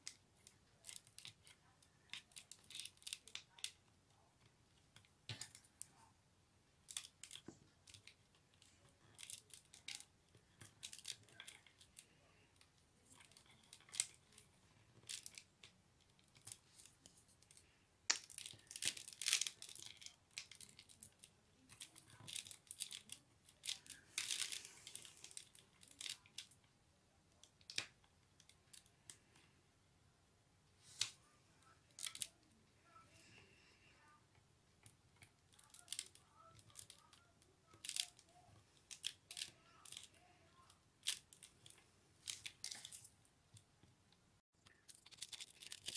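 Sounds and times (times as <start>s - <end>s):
paper tubes rustling and scraping: 23.7s - 25.5s.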